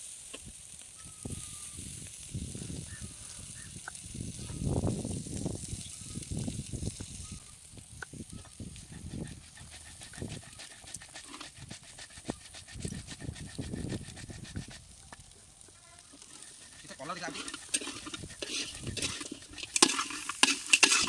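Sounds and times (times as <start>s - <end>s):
stone roller grinding chillies: 9.1s - 15.0s, 16.1s - 21.0s.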